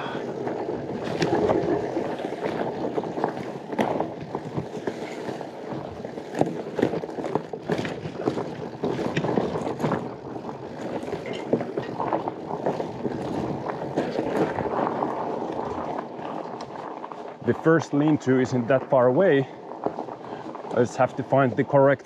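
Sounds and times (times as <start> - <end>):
bike tyres rumbling on trail: 0.0 - 22.0
bike knocks and rattles: 0.3 - 17.2.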